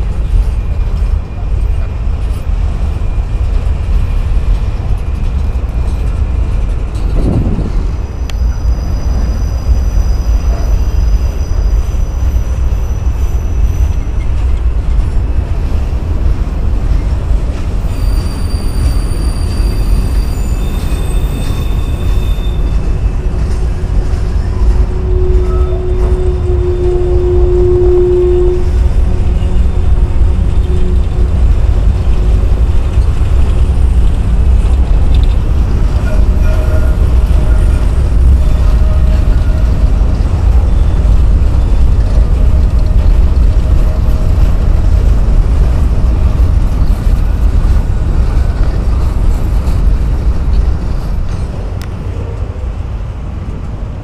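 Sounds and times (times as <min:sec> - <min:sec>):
train wheels rumbling on rail: 0:00.0 - 0:54.0
low squealing tone: 0:06.6 - 0:14.4, 0:17.8 - 0:44.6
high wheel squeals: 0:06.9 - 0:14.5, 0:17.8 - 0:31.1, 0:35.2 - 0:43.2.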